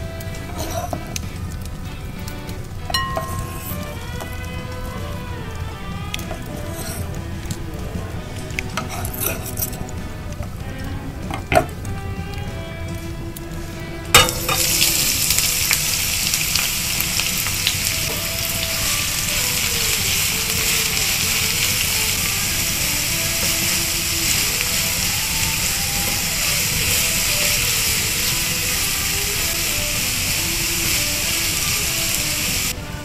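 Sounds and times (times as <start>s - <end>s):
onions sizzling in a frying pan: 0.0s - 33.0s
onions tipped into a pan: 14.2s - 15.9s.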